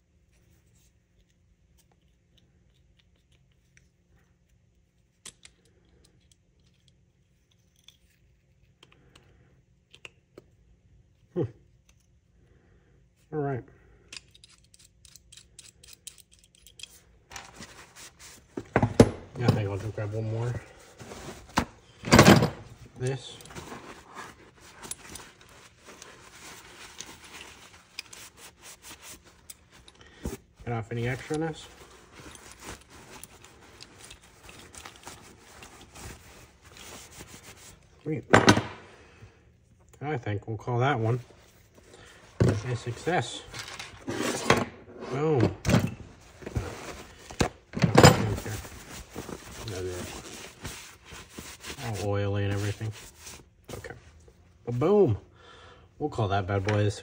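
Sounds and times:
metal wrench clicks and ticks: 0:14.1 - 0:17.0
towel rubbing on metal wrench: 0:22.8 - 0:37.9.

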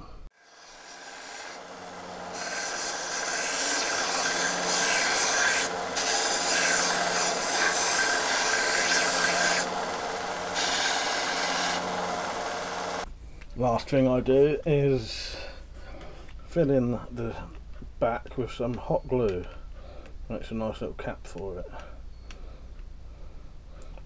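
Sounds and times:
metal grinding rasp: 0:00.4 - 0:13.0
bench sander motor humming: 0:00.4 - 0:13.1.

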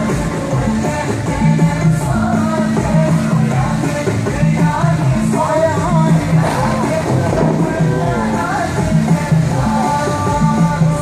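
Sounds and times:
song with bass and sliding melody: 0:00.0 - 0:11.0.

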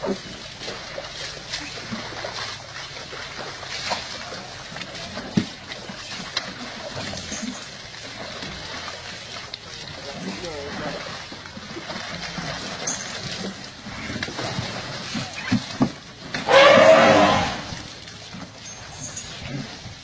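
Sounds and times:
baby elephant splashing water: 0:00.0 - 0:20.0.

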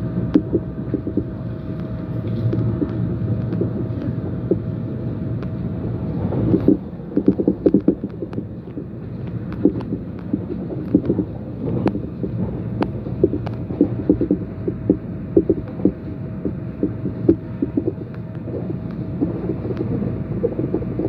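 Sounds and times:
train rumble on rails: 0:00.0 - 0:21.0.

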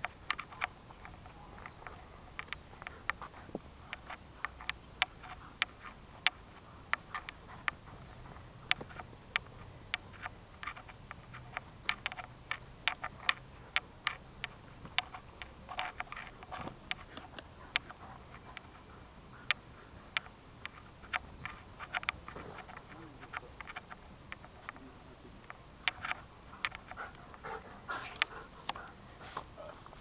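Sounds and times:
sharp clicks and ticks: 0:00.0 - 0:29.5
faint steady background noise: 0:00.0 - 0:30.0.

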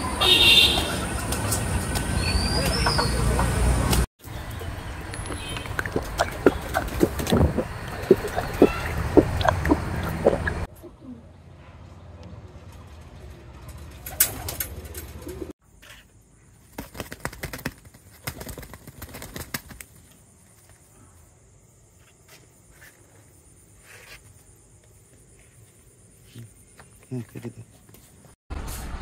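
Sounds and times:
pigeons cooing: 0:05.1 - 0:11.3
pigeon wings flapping: 0:13.9 - 0:15.5, 0:16.7 - 0:20.1.

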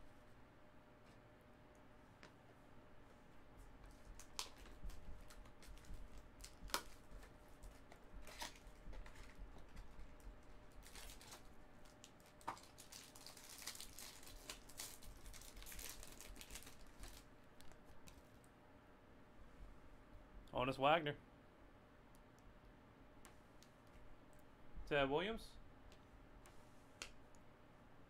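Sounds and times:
wrapper crinkling and tearing: 0:04.1 - 0:07.0, 0:08.2 - 0:18.2.

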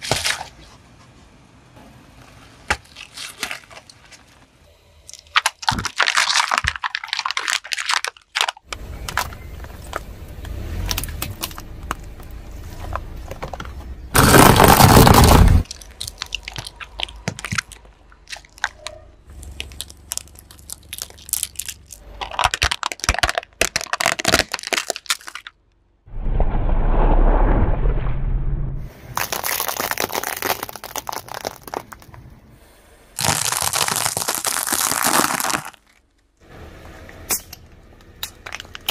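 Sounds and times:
plastic cracking and crunching: 0:05.1 - 0:10.1, 0:14.2 - 0:25.6, 0:29.2 - 0:32.2, 0:33.2 - 0:36.2
low rumble: 0:26.1 - 0:29.2.

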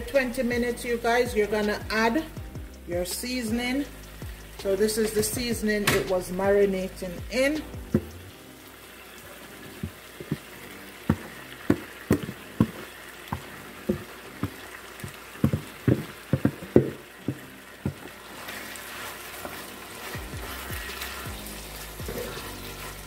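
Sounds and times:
chicken sizzling in a pot: 0:00.0 - 0:23.0
spoon stirring in a pot: 0:09.3 - 0:23.0
wooden spoon tapping plastic bowl: 0:11.1 - 0:14.6.

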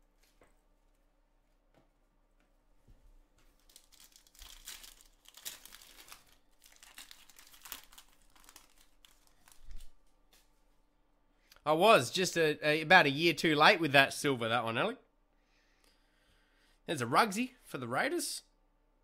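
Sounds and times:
foil wrapper crinkling: 0:03.5 - 0:10.0.

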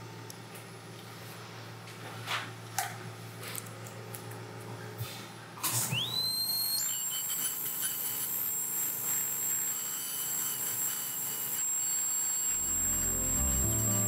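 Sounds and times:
dental drill whine: 0:05.9 - 0:14.0.

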